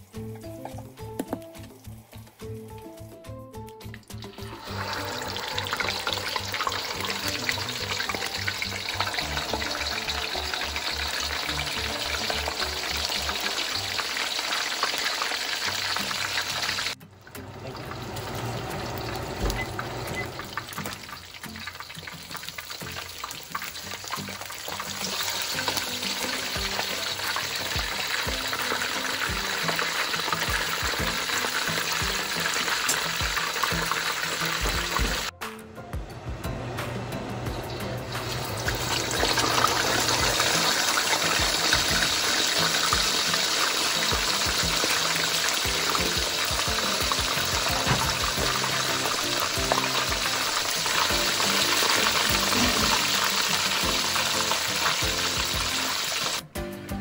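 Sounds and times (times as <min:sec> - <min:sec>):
fish deep-frying in hot oil: 0:03.8 - 0:35.3, 0:37.5 - 0:56.4.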